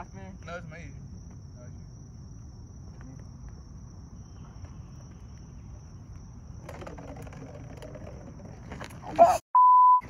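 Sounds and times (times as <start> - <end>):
high insect drone: 0.0 - 8.8
light scraping rattling: 6.6 - 9.3.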